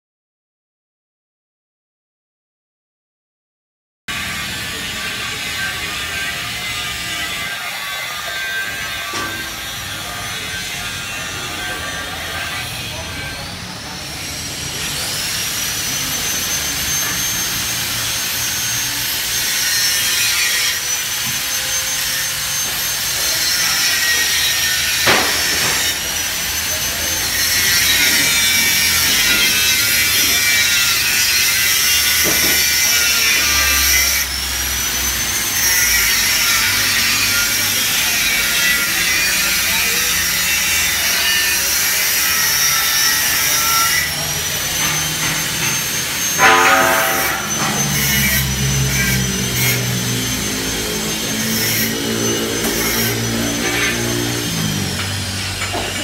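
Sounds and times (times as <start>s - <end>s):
grinder whine and rasp: 4.1s - 56.0s.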